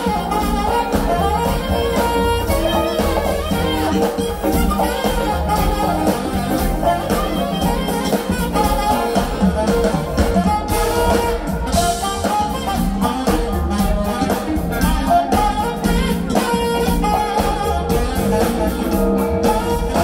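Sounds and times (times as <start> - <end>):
drum kit: 0.0 - 20.0
electric guitar: 0.0 - 20.0
keyboards: 0.0 - 20.0
saxophone: 0.0 - 20.0.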